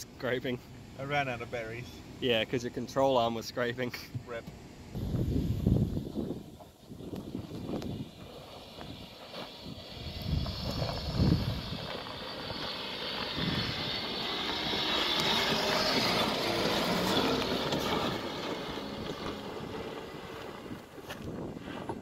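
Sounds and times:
suv engine on dirt track: 0:04.5 - 0:22.0.

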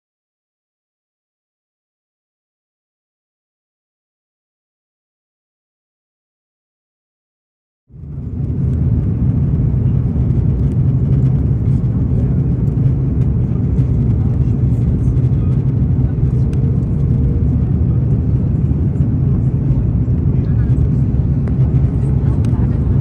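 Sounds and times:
airliner cabin engine drone: 0:07.9 - 0:23.0.

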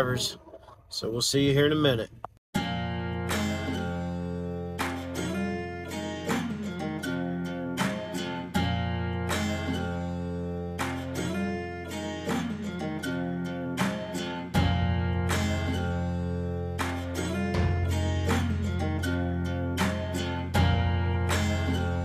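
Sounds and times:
strummed acoustic guitar: 0:02.6 - 0:22.0
steady bass: 0:13.8 - 0:22.0.

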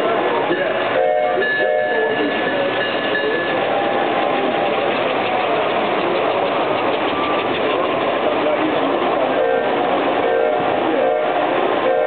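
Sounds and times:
model trains rumbling on rails: 0:00.0 - 0:12.0.

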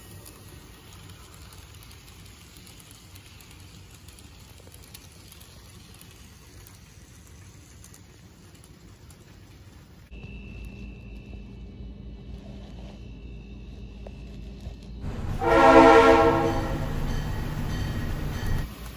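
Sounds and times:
model train cars rattling: 0:00.0 - 0:10.0, 0:15.0 - 0:18.9
wheels clicking on rails: 0:00.0 - 0:11.3, 0:14.2 - 0:18.9.

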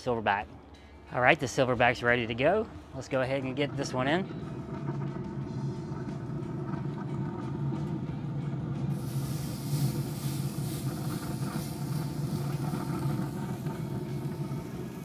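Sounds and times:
steady low hum: 0:00.6 - 0:15.0
steak sizzling on grill: 0:08.9 - 0:15.0.

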